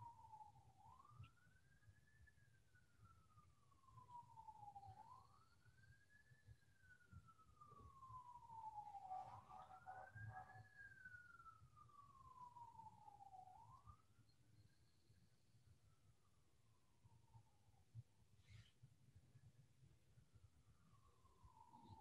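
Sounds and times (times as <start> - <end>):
emergency vehicle siren wailing: 0.0 - 14.1, 20.8 - 22.0.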